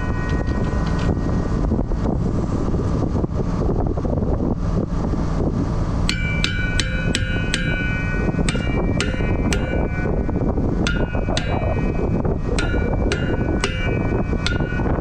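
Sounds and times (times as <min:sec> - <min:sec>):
low rumble: 0:00.0 - 0:15.0
hammer striking steel: 0:06.1 - 0:15.0.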